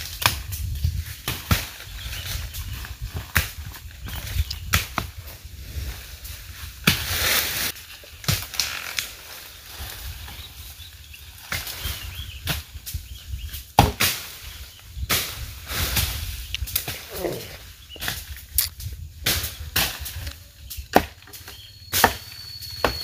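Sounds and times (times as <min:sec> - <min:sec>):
rustling with swishes: 0:05.1 - 0:07.8.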